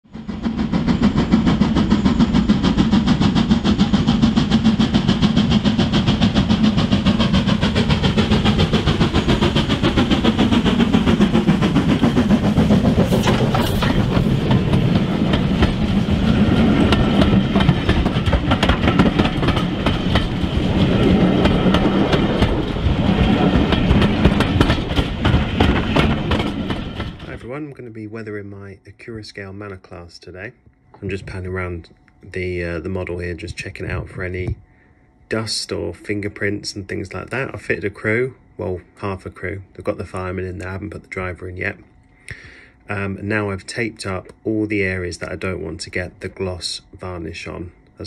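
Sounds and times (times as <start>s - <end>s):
model train rumbling: 0.0s - 48.0s
wheels clattering on rail: 0.3s - 27.4s.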